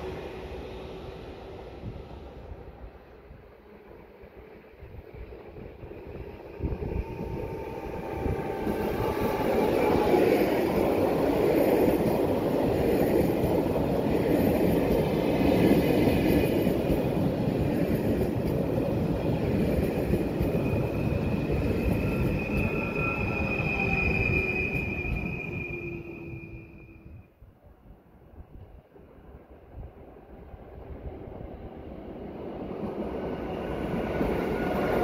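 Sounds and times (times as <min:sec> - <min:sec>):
train rolling rumble: 0:00.0 - 0:27.2
high wheel squeal: 0:20.5 - 0:27.2.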